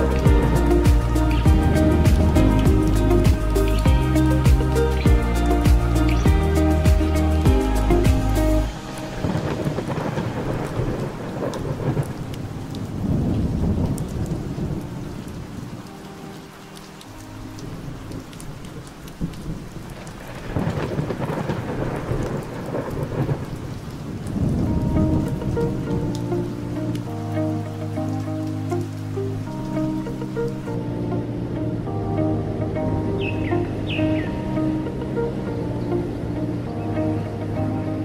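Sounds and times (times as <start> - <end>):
steady rain: 0.0 - 38.0
rolling thunder: 9.1 - 15.0, 19.2 - 26.2.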